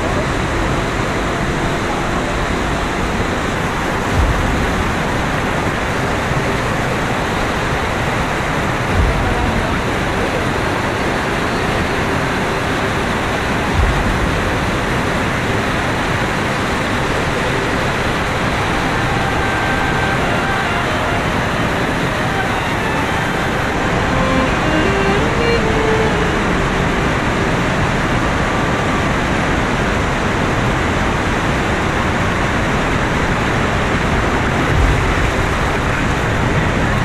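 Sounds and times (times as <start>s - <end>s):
low thumps: 2.5s - 6.6s, 8.6s - 10.4s, 13.4s - 15.7s, 34.7s - 36.9s.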